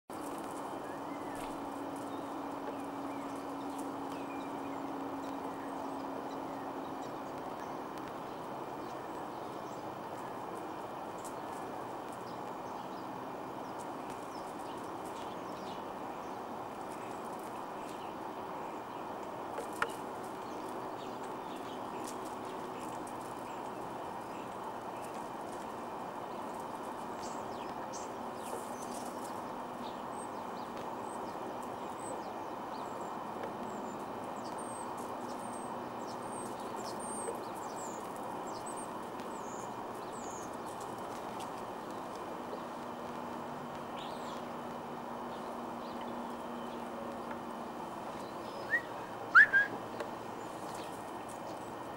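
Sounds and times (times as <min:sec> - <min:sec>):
small birds chirping: 0:00.1 - 0:51.9
steady background hiss: 0:00.1 - 0:51.9.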